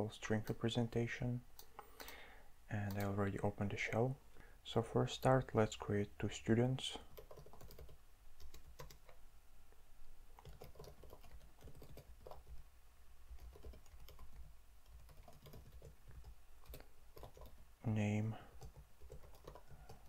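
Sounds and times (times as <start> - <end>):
low steady hum: 0.0 - 20.0
keyboard typing: 1.6 - 2.2, 7.1 - 9.2, 10.4 - 12.6, 13.3 - 17.6, 18.5 - 20.0.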